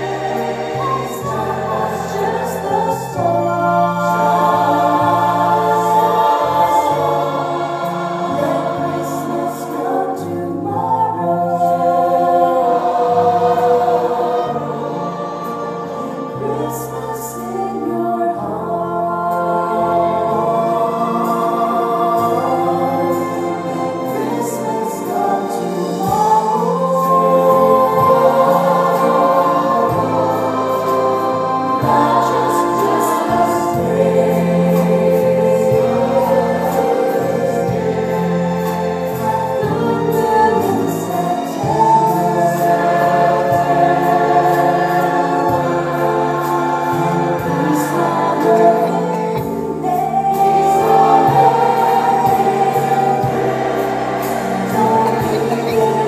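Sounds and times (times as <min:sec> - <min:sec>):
choir singing: 0:00.0 - 0:56.0
strings: 0:00.0 - 0:56.0
woman singing: 0:16.3 - 0:20.2, 0:47.0 - 0:53.4, 0:54.7 - 0:56.0
man singing: 0:54.8 - 0:56.0.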